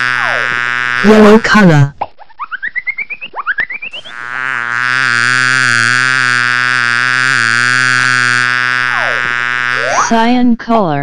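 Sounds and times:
steady buzzing tone: 0.0 - 1.9, 3.8 - 10.5
rising synthesized chirps: 2.2 - 4.5.

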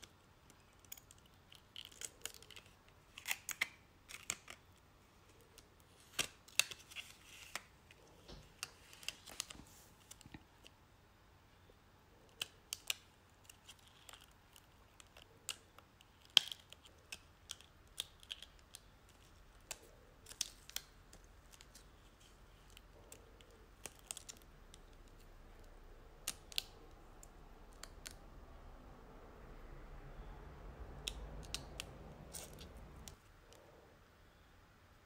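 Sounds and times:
vinyl peeling crackles: 5.8 - 10.7, 12.3 - 28.2.

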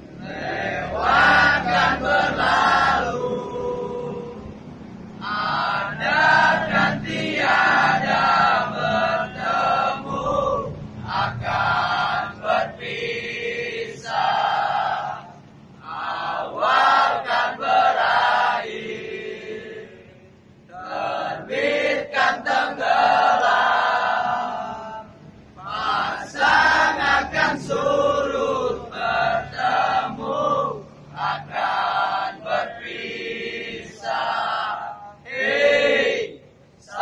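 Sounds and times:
crowd singing in unison: 0.0 - 37.0.

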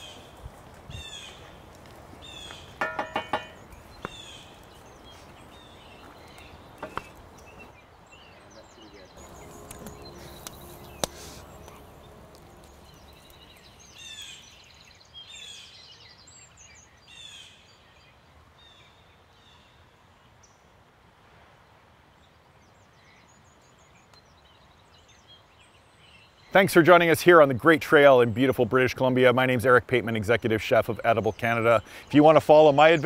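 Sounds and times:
bird chirping: 0.0 - 18.0
faint outdoor ambience: 0.0 - 33.0.

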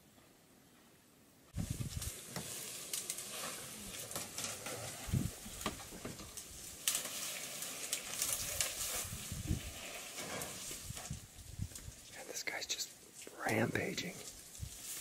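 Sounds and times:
crackling and rustling branches: 1.5 - 15.0.

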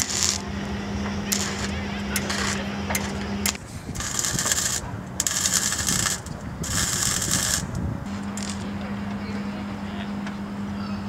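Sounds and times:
power tool cutting steel: 0.0 - 8.7.

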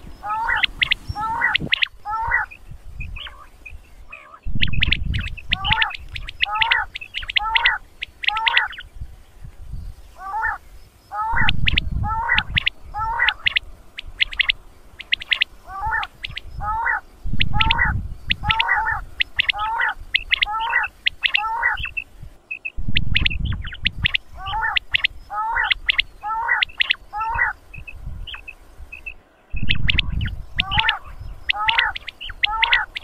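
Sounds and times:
quail calling: 0.0 - 8.9, 10.1 - 33.0
low rumbling noise: 0.0 - 10.3, 11.1 - 26.4, 27.0 - 33.0.

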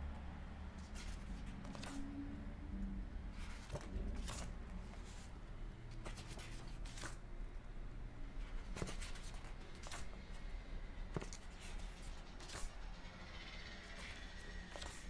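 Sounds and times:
low steady hum: 0.0 - 15.0
book pages turning: 0.8 - 2.1, 3.3 - 7.2, 8.4 - 10.2, 11.1 - 12.8, 13.9 - 15.0.

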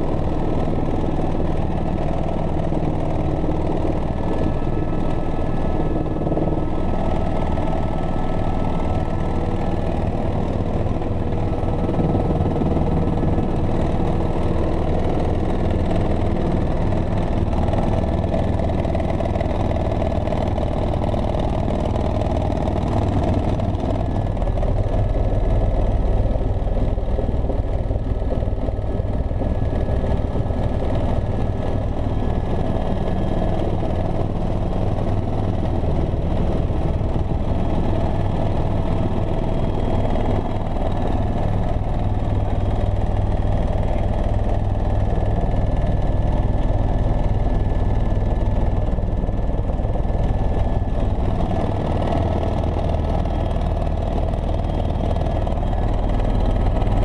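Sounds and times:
helicopter rotor and engine drone: 0.0 - 57.0
thin steady whine: 0.0 - 57.0.

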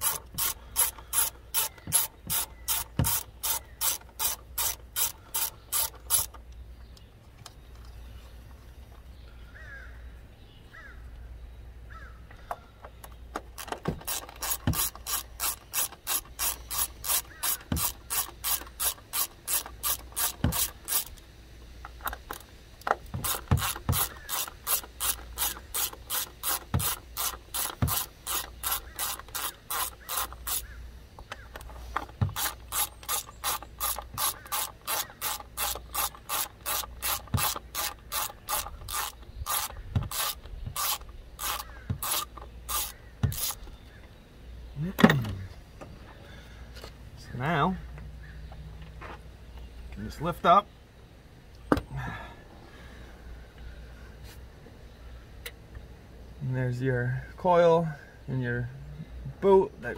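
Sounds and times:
hand ratchet clicking rapidly: 0.0 - 6.4, 13.5 - 21.2, 23.1 - 30.7, 31.6 - 43.6.

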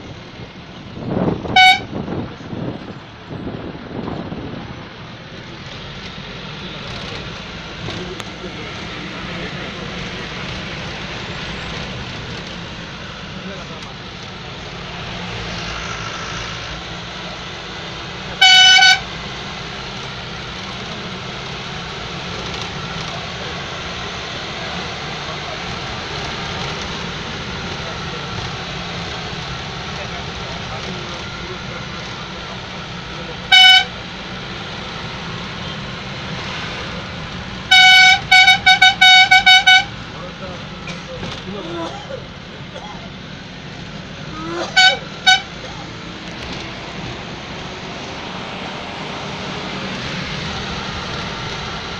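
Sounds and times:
engine and road noise in cab: 0.0 - 51.9
short horn blast: 1.5 - 2.0, 18.4 - 19.1, 33.5 - 34.0, 37.7 - 39.9, 44.5 - 45.7.

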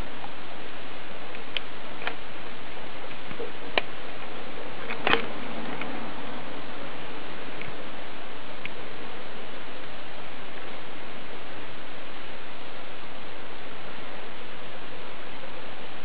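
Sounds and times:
steady hiss: 0.0 - 16.0
small clicks: 1.3 - 6.0.

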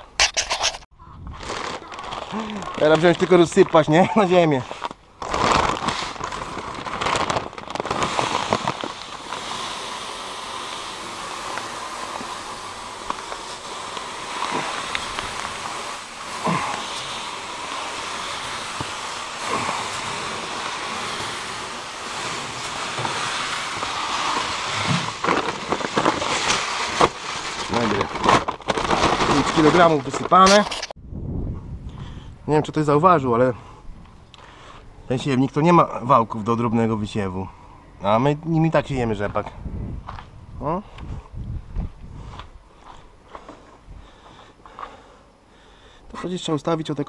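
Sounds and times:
seeds pouring hiss: 1.4 - 30.9.

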